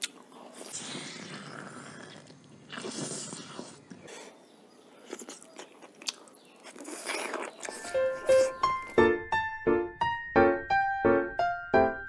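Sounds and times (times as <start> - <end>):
wet chewing and smacking: 5.0 - 9.0.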